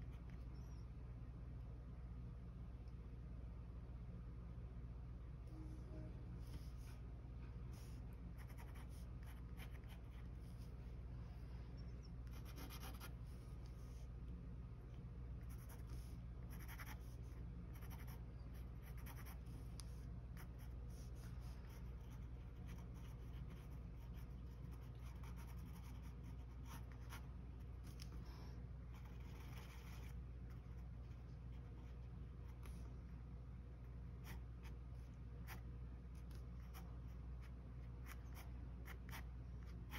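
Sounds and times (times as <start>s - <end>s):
faint low hum: 0.0s - 39.9s
pen scratching on paper: 8.4s - 10.6s, 12.2s - 13.1s, 15.5s - 19.5s, 20.4s - 27.2s, 28.9s - 30.8s.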